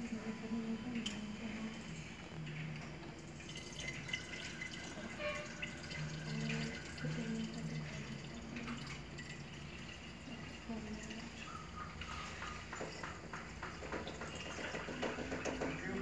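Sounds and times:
water trickling and dripping: 0.1 - 16.0.

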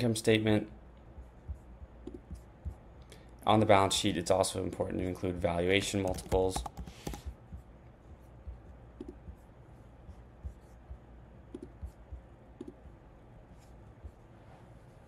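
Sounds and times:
mouse and keyboard clicks: 6.0 - 7.3, 11.5 - 11.8.

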